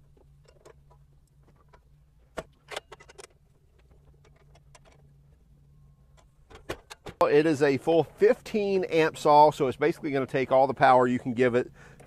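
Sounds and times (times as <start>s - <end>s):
low steady hum: 0.0s - 12.0s
metal parts clicking and tapping: 2.6s - 5.1s.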